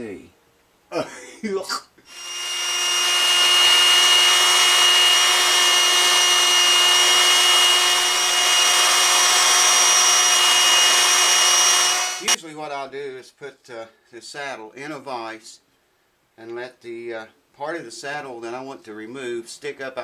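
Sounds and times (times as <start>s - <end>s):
belt sander grinding bone: 2.1s - 12.4s.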